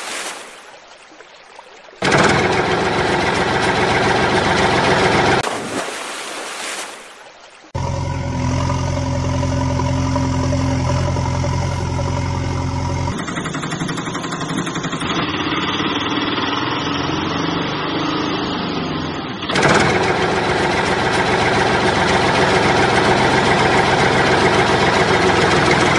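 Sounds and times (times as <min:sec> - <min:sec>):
lighter engine running: 0:02.0 - 0:05.4, 0:07.8 - 0:16.0, 0:19.5 - 0:25.9
loud engine idling: 0:02.0 - 0:05.4, 0:07.8 - 0:18.7, 0:19.4 - 0:25.9
low engine hum: 0:02.0 - 0:05.6, 0:07.7 - 0:25.9.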